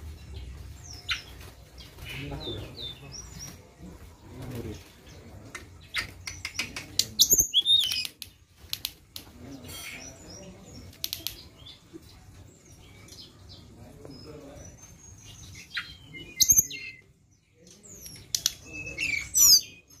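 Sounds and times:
bird whistling and clicking: 5.9s - 9.3s, 10.9s - 11.4s, 17.9s - 19.7s.

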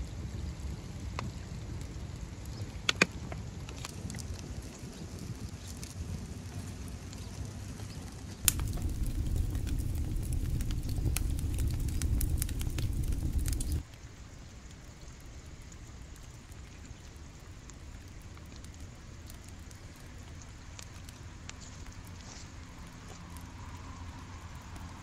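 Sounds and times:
wood fire crackling: 8.4s - 13.9s, 16.4s - 22.3s
low rumble: 8.5s - 13.8s.

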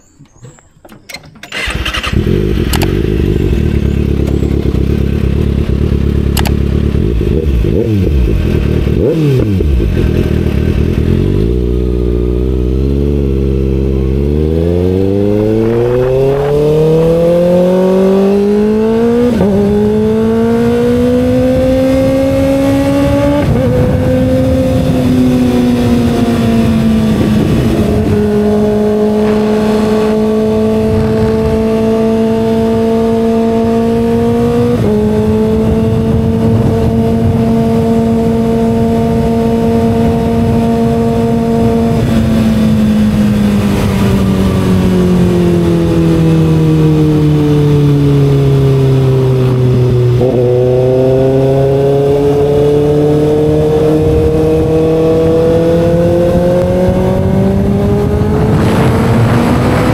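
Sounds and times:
motorcycle engine accelerating: 1.5s - 59.9s.

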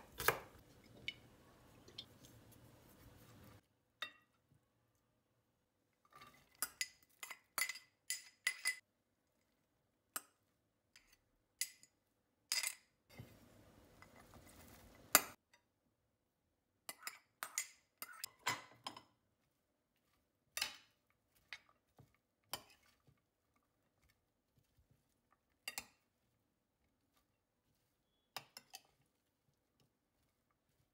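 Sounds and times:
metal spoon clinking on dishes: 6.5s - 8.8s.

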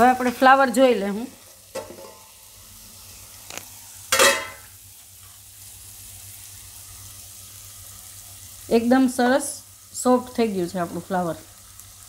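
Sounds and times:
metal lid clanking: 4.1s - 4.7s.

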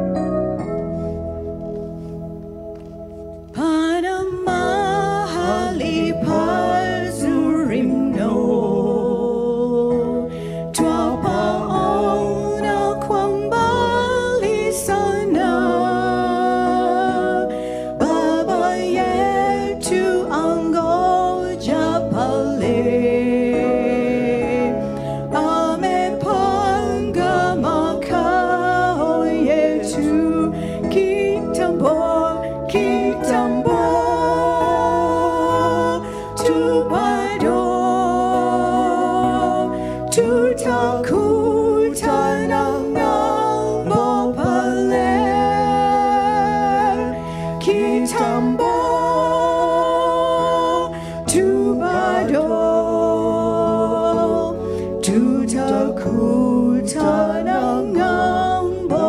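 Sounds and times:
man and woman singing a hymn: 3.6s - 59.0s.

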